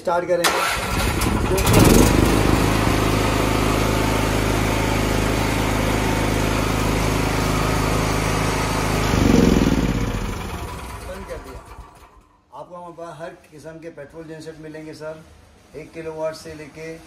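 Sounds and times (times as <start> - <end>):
portable generator engine running: 0.8 - 12.3.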